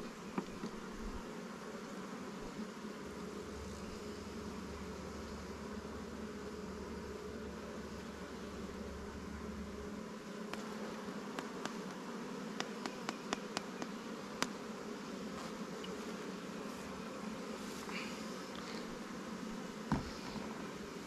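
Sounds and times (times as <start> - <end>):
bees buzzing: 0.0 - 21.0.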